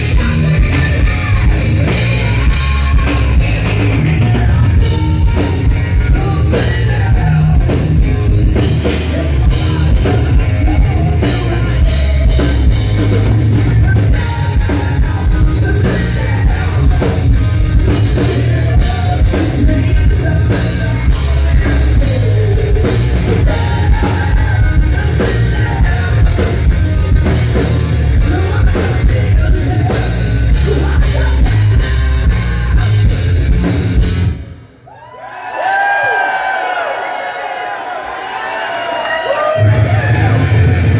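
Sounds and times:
distorted electric guitar: 0.0s - 34.8s, 39.6s - 40.9s
pounding drum kit: 0.0s - 34.8s, 39.4s - 40.9s
bass: 0.0s - 36.9s, 38.6s - 40.9s.

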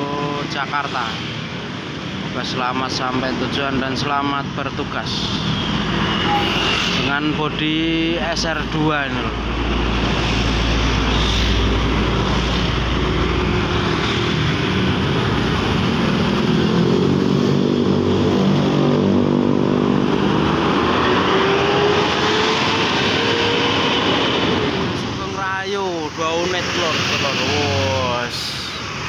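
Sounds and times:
passing traffic engine: 0.0s - 29.0s
bus diesel engine passing: 5.2s - 25.3s.

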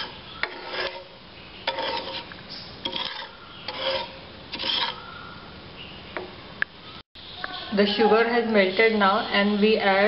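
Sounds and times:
wooden spatula scraping a pan: 0.0s - 5.1s.

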